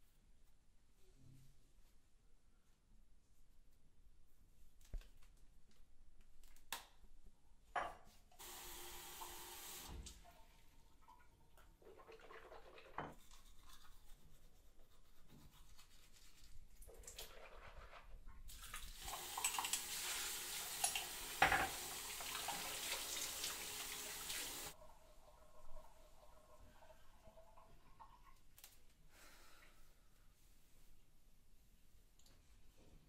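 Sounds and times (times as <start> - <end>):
rinsing mouth at sink: 10.9 - 24.8
hands washing and splashing: 11.0 - 14.1, 15.5 - 24.8
tap running into washbasin: 18.5 - 24.7.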